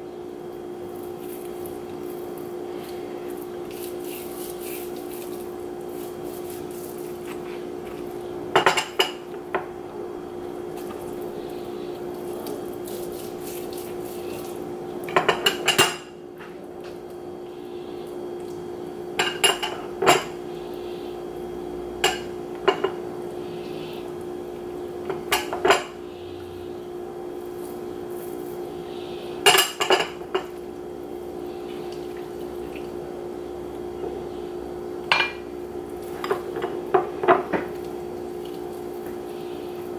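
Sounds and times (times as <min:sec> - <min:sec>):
steady hum: 0:00.0 - 0:39.9
kitchen utensils and dishes clattering: 0:19.2 - 0:20.3.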